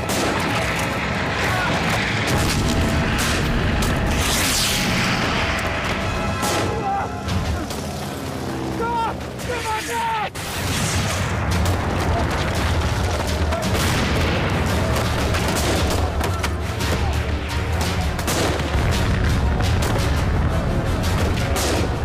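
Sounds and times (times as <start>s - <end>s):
explosions: 0.0s - 6.8s, 10.4s - 16.2s, 18.2s - 22.0s
dramatic music score: 0.0s - 22.0s
rapid gunfire: 10.4s - 16.3s.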